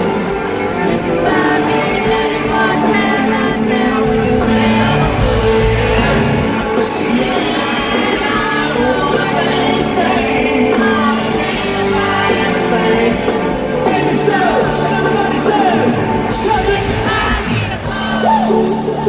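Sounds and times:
electric guitar: 0.0 - 19.0
live country rock band: 0.0 - 19.0
man singing lead: 0.0 - 19.0
audience yelling and whooping: 3.2 - 9.9, 13.6 - 19.0.

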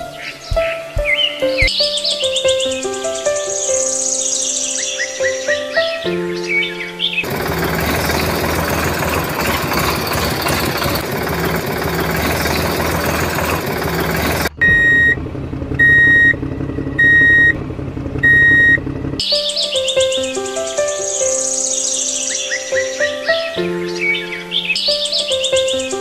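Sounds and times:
background music: 0.0 - 7.2, 19.2 - 26.0
birds chirping: 0.0 - 14.6, 19.2 - 26.0
truck engine running: 7.2 - 19.2
reversing alarm beeps: 14.6 - 15.2, 15.8 - 16.4, 17.0 - 17.6, 18.2 - 18.8.

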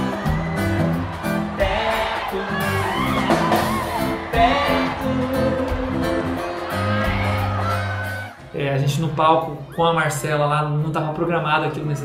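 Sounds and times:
pop song with singing: 0.0 - 8.3
bass line: 0.0 - 9.2.

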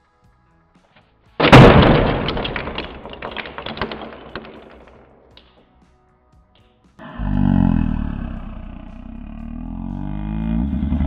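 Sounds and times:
plastic model crashing onto table: 1.4 - 5.6
plastic pieces clattering: 1.4 - 5.6.

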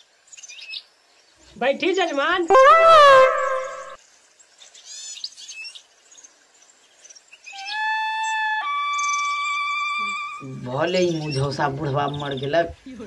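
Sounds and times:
steady held tone: 2.5 - 4.0
birds chirping: 6.7 - 12.9.

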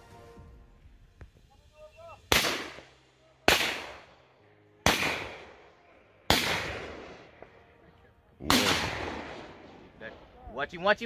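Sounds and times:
shotgun shots with echo: 2.3 - 2.9, 3.5 - 4.1, 4.8 - 5.6, 6.3 - 7.4, 8.4 - 10.0.

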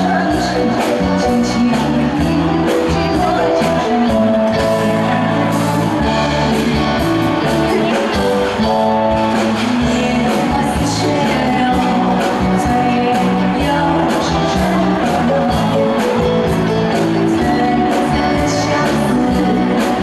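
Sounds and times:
live band playing: 0.0 - 20.0
woman singing into microphone: 0.0 - 20.0.

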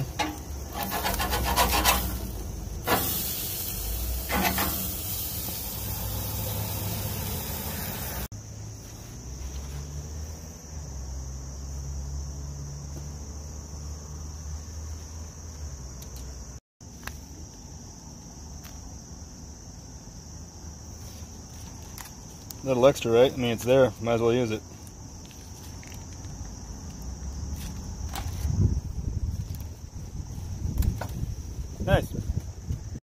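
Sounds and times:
metal spatula scraping grill grate: 0.0 - 5.6
patty sizzling on a grill: 0.0 - 8.3
crickets chirring: 0.0 - 33.0.

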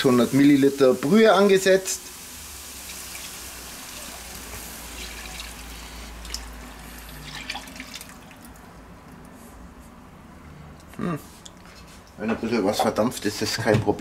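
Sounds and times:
broth pouring into a pan: 0.0 - 8.5.

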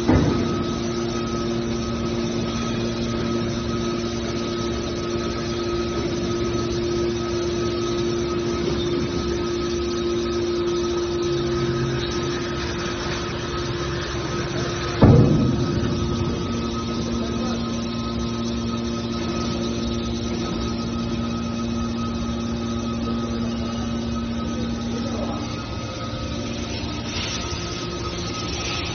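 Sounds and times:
baling press machine hum: 0.0 - 28.9
short metal clank: 15.0 - 17.2.

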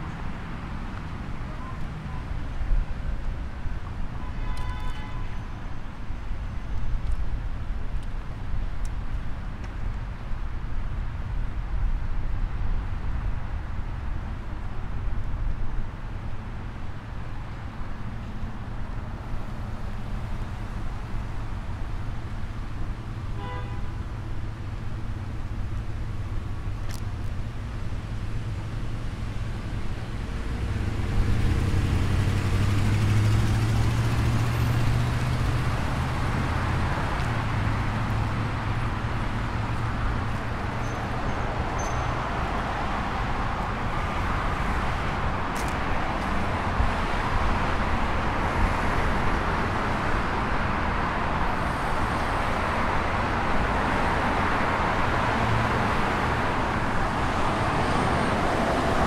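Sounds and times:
cars passing on street: 0.0 - 59.0.

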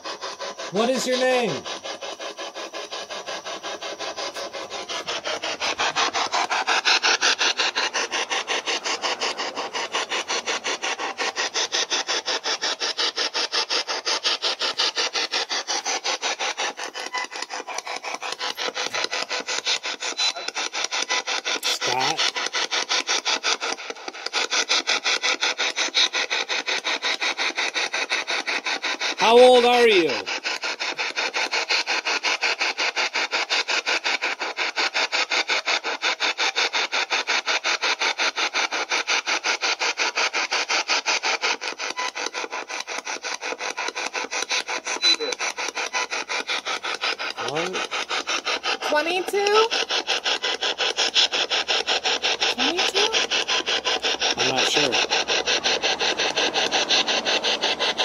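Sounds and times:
broadcast voice fragments: 0.7 - 1.6, 21.6 - 22.2, 29.2 - 30.2, 52.6 - 53.2, 54.3 - 55.0.

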